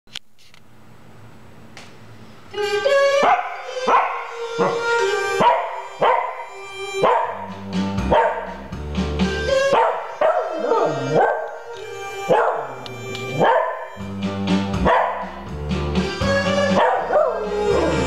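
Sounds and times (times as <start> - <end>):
tv theme music: 2.6 - 18.0
dog howling: 3.2 - 7.5, 9.5 - 14.0, 16.4 - 18.0.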